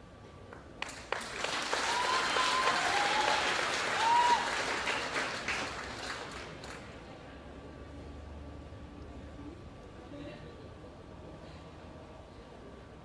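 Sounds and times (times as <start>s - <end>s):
crowd applauding: 0.5s - 7.0s.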